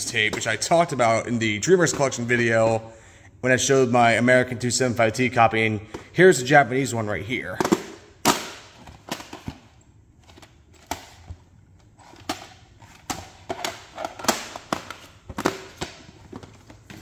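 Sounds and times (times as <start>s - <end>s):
plastic tape cases clicking: 12.0s - 17.0s.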